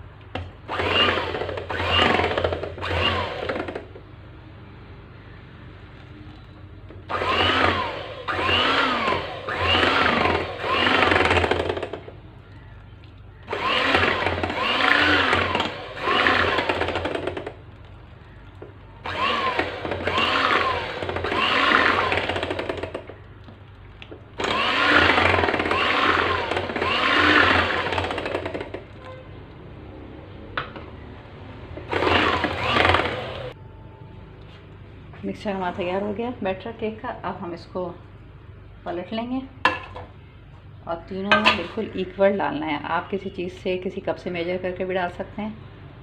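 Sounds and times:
electric hand mixer whining: 0.7s - 3.8s, 7.1s - 12.0s, 13.4s - 17.5s, 19.0s - 23.2s, 24.4s - 28.8s, 31.8s - 33.6s.

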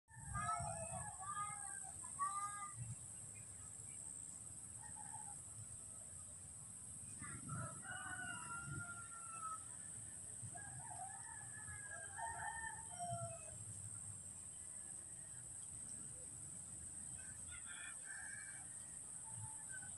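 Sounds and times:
rooster crowing: 7.4s - 9.7s, 10.6s - 13.6s, 17.2s - 18.9s
steady high hiss: 12.7s - 19.9s.

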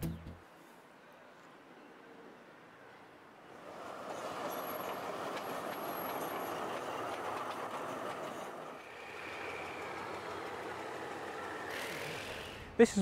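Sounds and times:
diesel train rolling by: 2.8s - 13.0s.

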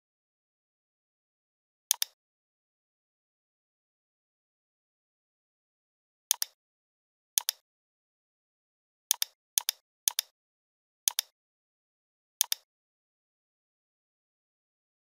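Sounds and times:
computer mouse clicks: 1.9s - 2.2s, 6.3s - 6.6s, 7.4s - 7.6s, 9.1s - 10.3s, 11.1s - 11.3s, 12.4s - 12.7s.

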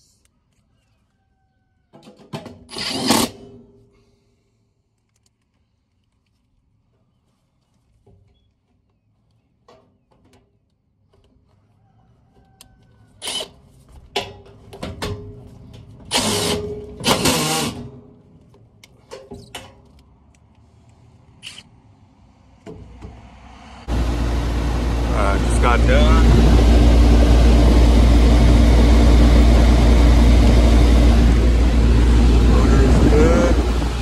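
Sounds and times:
cordless drill driving screws: 2.7s - 3.4s, 13.2s - 13.5s, 16.1s - 17.8s.

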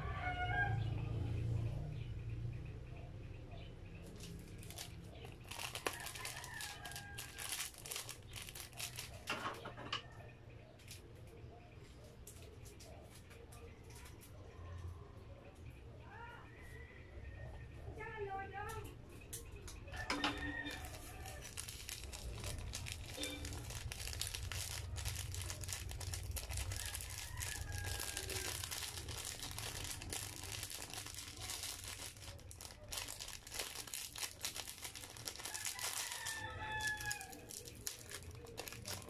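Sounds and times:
plastic sachets crinkling: 4.1s - 9.4s, 20.0s - 39.0s.

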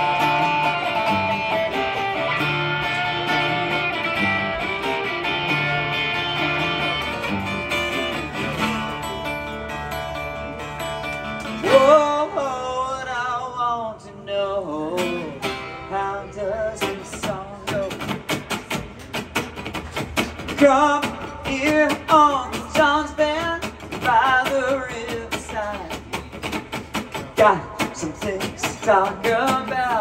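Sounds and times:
acoustic guitar playing: 0.0s - 30.0s
person singing: 11.4s - 18.4s, 27.3s - 30.0s.

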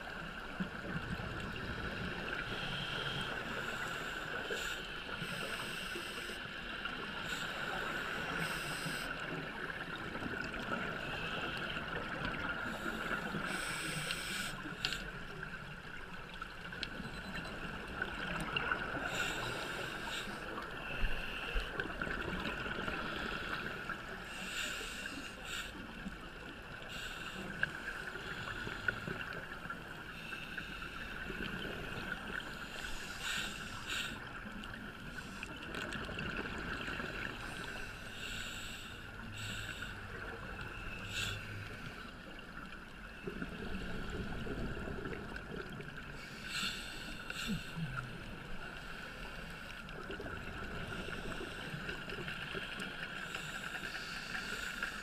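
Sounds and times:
diver breathing through regulator: 7.2s - 9.2s, 12.6s - 15.0s, 19.0s - 21.7s, 32.6s - 34.2s, 37.4s - 42.1s, 46.2s - 48.2s, 53.2s - 55.0s.

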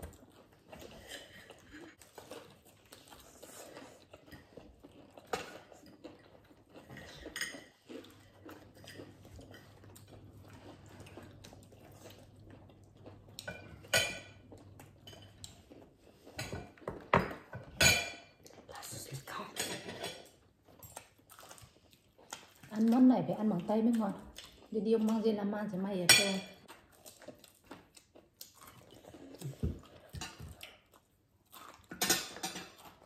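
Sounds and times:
plates and cutlery clinking: 13.4s - 15.5s, 16.3s - 18.4s, 19.5s - 20.4s, 31.9s - 32.8s.

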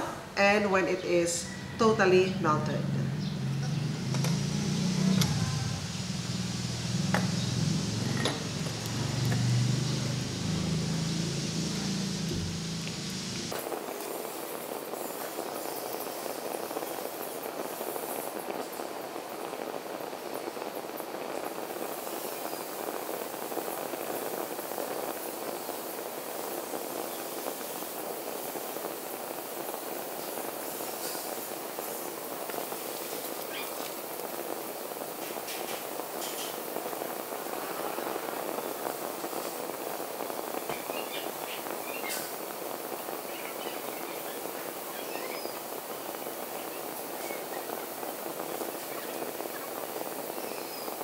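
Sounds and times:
gas burner flame rushing: 1.3s - 51.0s
low mechanical hum: 1.4s - 13.6s.

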